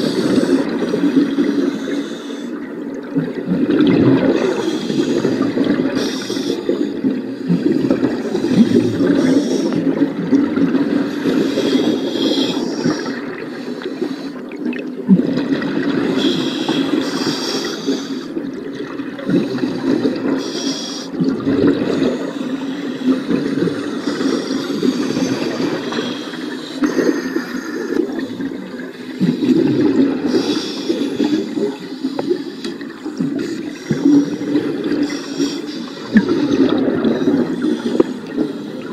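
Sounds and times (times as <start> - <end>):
underwater bubbling: 0.0 - 38.9
regulator breathing hiss: 6.0 - 6.9, 16.2 - 18.3, 20.4 - 21.2.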